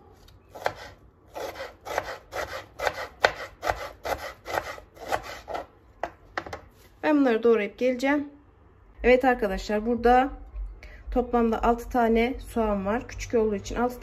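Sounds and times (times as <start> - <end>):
knife chopping on plastic board: 0.5 - 6.6.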